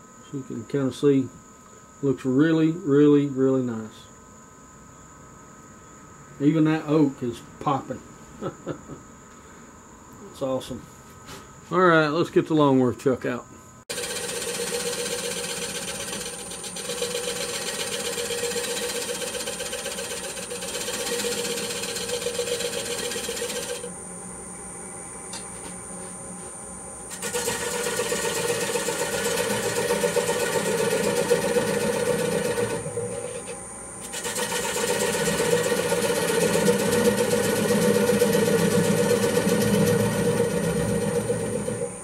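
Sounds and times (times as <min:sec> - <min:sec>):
gouge scraping wood: 0:13.9 - 0:23.9, 0:27.1 - 0:41.8
wood lathe hum and whine: 0:13.9 - 0:42.0.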